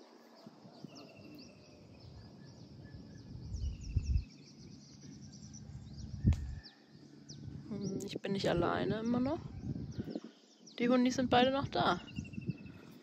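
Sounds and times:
birds chirping: 0.0 - 13.0
long falling whistled bird calls: 0.2 - 7.6
low rumble on microphone: 2.0 - 13.0.

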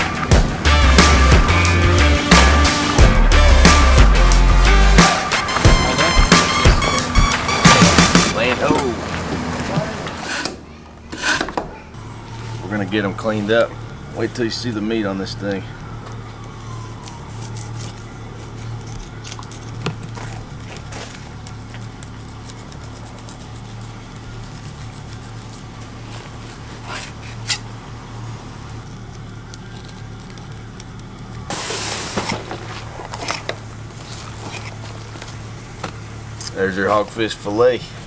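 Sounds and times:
knife scraping fish: 10.2 - 11.5, 26.3 - 27.7
brief rush of hiss: 31.5 - 32.4.

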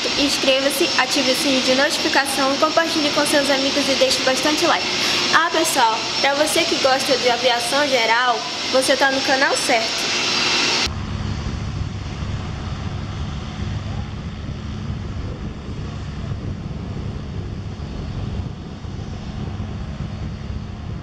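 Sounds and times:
distant propeller aircraft engine: 0.0 - 21.0
wind buffeting microphone: 10.4 - 21.0.

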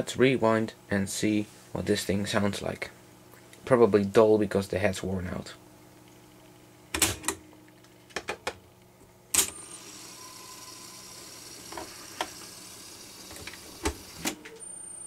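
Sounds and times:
cassette rewinding whir: 9.4 - 14.7.

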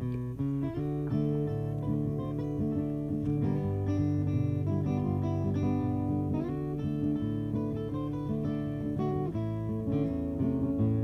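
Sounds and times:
acoustic guitar plucked and strummed: 0.0 - 11.0.

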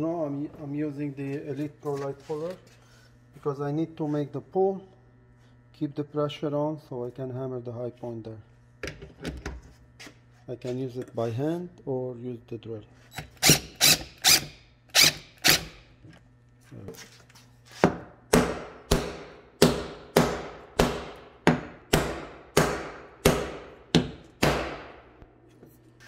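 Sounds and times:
hammer tapping car panel: 17.9 - 24.9.

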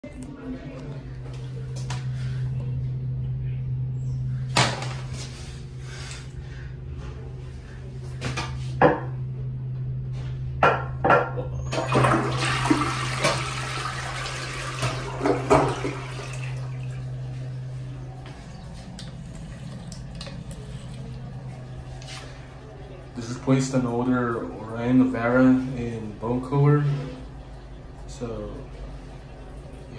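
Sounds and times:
low steady hum: 0.0 - 29.9
toilet flushing: 11.6 - 29.9.

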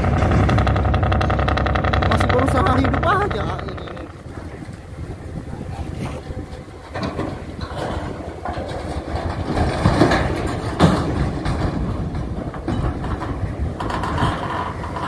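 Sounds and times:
heavy metal bangs: 0.0 - 4.6
metal grinding and clattering: 0.0 - 5.0, 6.1 - 15.0
low metal rumble: 0.0 - 15.0.

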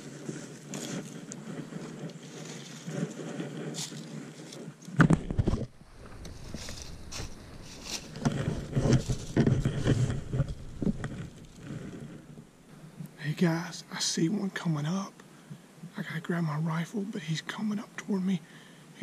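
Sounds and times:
dry leaves crunching: 0.0 - 4.6, 5.8 - 11.7.

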